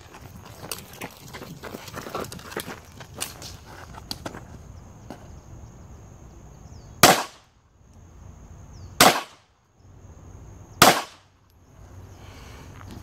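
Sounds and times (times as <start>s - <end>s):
pistol shots: 7.0s - 7.4s, 9.0s - 9.4s, 10.8s - 11.2s.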